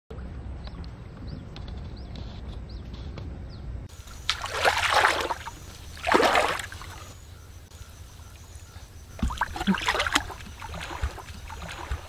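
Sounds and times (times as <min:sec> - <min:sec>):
water sloshing: 0:04.0 - 0:07.2, 0:09.0 - 0:12.0.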